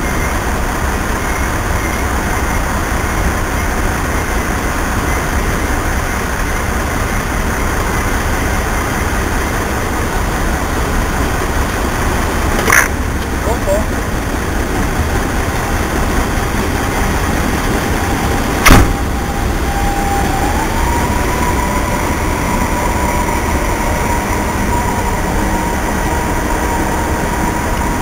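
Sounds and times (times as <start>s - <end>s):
diesel railcar engine running: 0.0s - 28.0s
engine whine: 0.0s - 28.0s
sharp knock: 18.6s - 19.0s.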